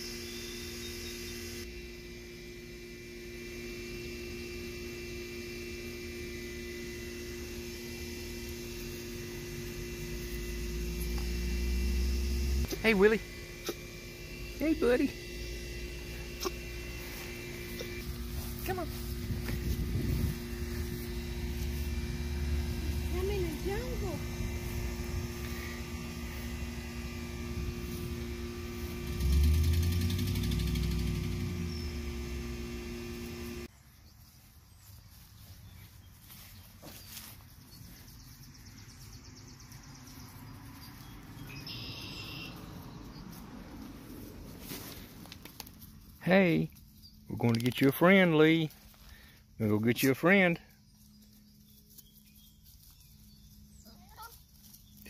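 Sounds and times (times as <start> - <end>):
steady tonal hum: 0.0 - 33.8, 34.4 - 55.0
low engine rumble: 3.4 - 33.7, 37.5 - 55.0.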